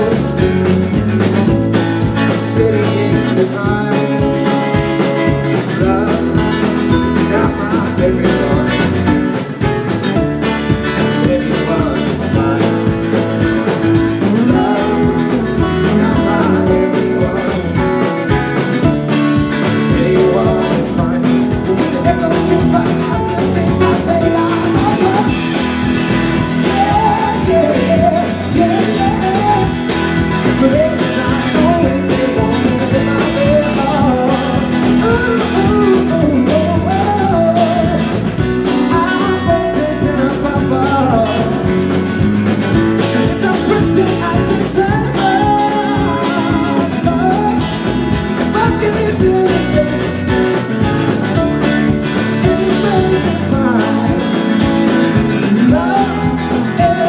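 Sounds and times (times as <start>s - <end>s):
drums keeping a beat: 0.0s - 57.0s
electric guitar: 0.0s - 57.0s
strummed acoustic guitar: 0.0s - 57.0s
wavering melodic lead line: 0.0s - 57.0s.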